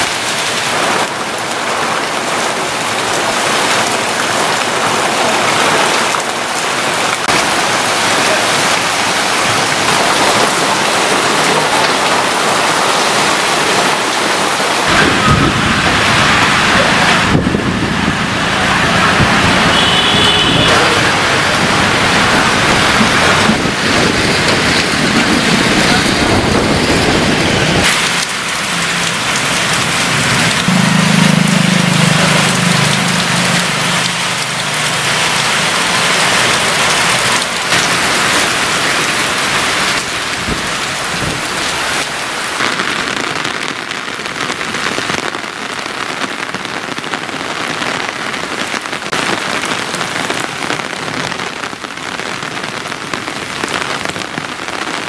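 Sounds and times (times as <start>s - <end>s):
heavy rain on a road: 0.0s - 55.0s
wind gusts: 7.3s - 30.7s.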